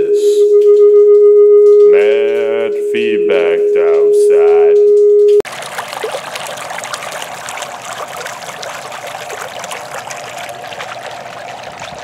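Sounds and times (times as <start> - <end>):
small water drips and splashes: 5.4 - 12.0
water trickling: 5.4 - 12.0.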